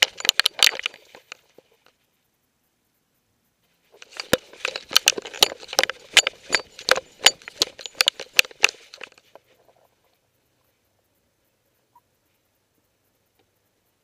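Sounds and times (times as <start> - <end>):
sharp clicks: 0.0 - 2.1, 3.9 - 9.4
scraping and rustling: 0.0 - 2.2, 3.6 - 10.3.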